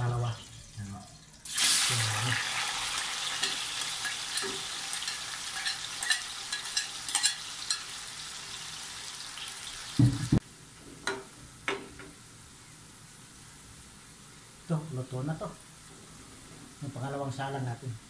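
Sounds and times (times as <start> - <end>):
food sizzling in hot oil: 0.0 - 10.4.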